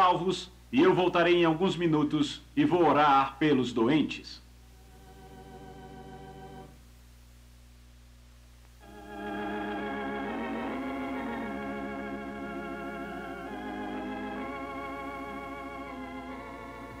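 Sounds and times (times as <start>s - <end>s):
steady low hum: 0.0s - 17.0s
organ playing slow chords: 3.6s - 6.8s, 8.8s - 17.0s.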